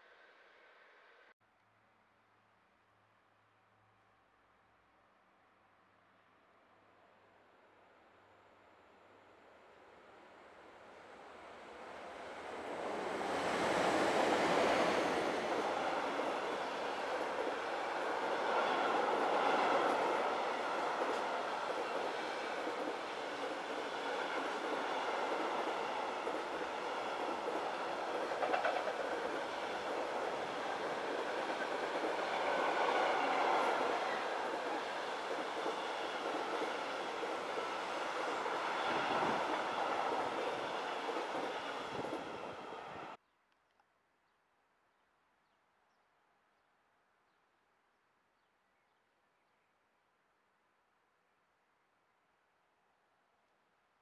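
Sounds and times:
electric locomotives passing: 9.6 - 43.2
wheels clacking over rails: 24.4 - 37.4.

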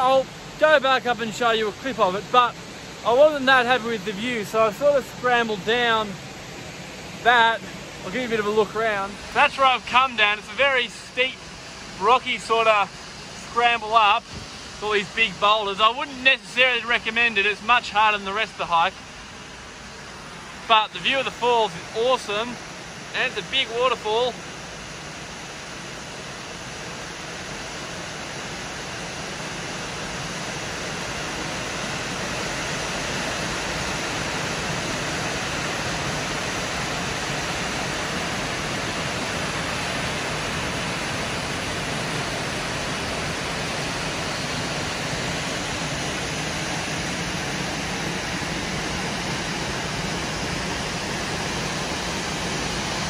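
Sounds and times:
waterfall rushing: 0.0 - 53.0.

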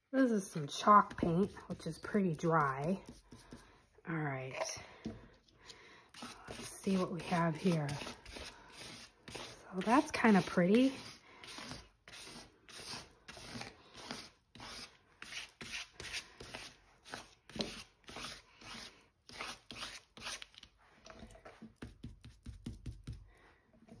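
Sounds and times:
chalk paint scrubbing on paper: 1.0 - 3.8, 6.1 - 20.5.

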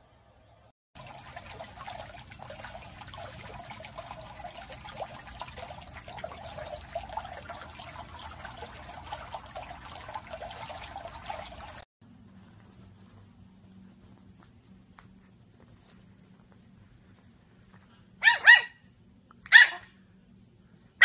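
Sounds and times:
pool water trickling and splashing: 1.0 - 11.9.

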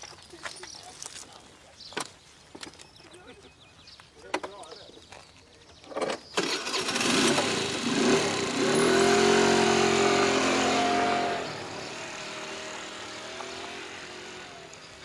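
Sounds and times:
motor scooter driving past: 6.4 - 15.0.

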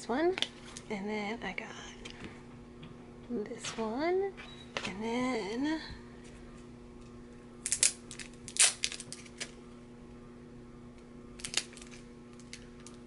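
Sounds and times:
faint steady hum: 0.0 - 13.0
packet crinkling and crackling: 7.6 - 9.6, 11.4 - 13.0.

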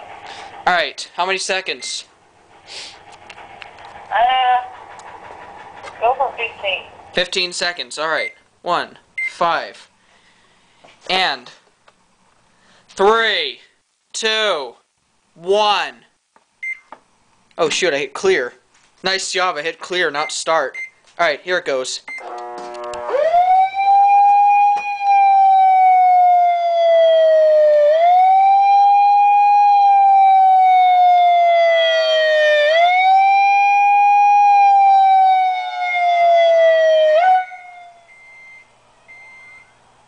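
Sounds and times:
electronic siren wailing: 22.2 - 38.2.

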